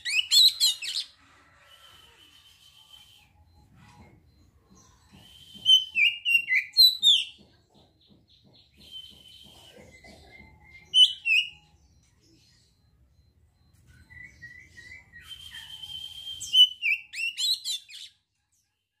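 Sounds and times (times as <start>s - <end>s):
bird singing whistled notes: 4.8s - 7.3s, 13.9s - 18.2s.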